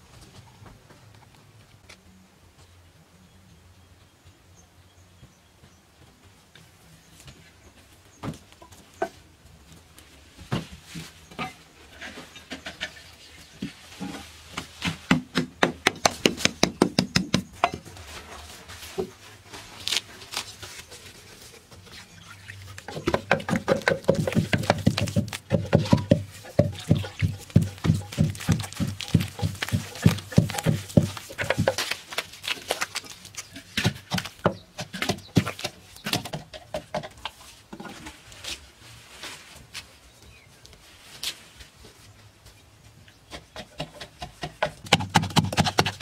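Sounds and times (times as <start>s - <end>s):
hands mixing wet clay: 12.3s - 37.7s
knocks and taps of manual work: 13.6s - 17.9s, 22.8s - 38.1s, 43.1s - 46.0s.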